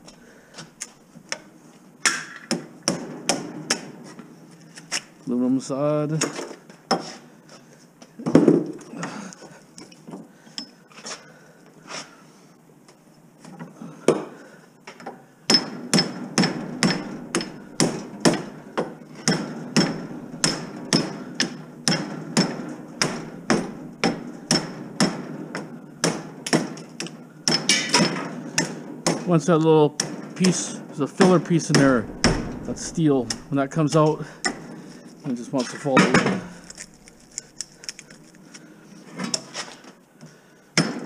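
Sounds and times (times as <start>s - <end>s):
hammer striking metal: 15.5s - 18.5s, 19.2s - 25.2s, 31.2s - 34.8s.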